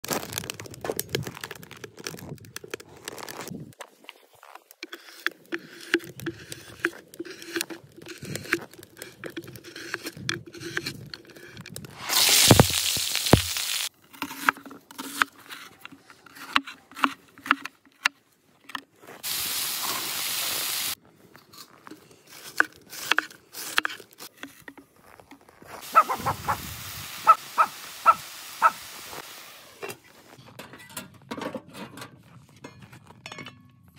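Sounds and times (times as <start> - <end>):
food sizzling in hot wok: 12.0 - 13.9, 19.2 - 21.0, 25.8 - 29.8.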